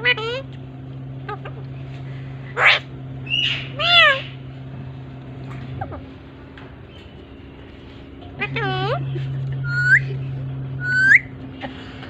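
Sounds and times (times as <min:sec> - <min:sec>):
parakeets screeching and squawking: 0:00.0 - 0:00.5, 0:01.2 - 0:04.4, 0:08.4 - 0:10.1.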